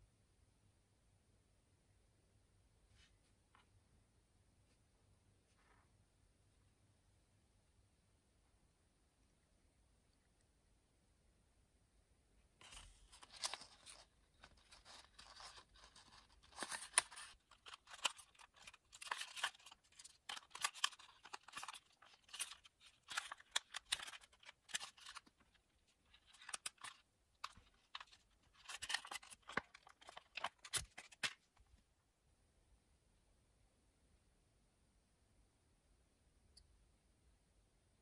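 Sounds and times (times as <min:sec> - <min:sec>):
paper crinkling and rubbing: 0:12.6 - 0:31.6.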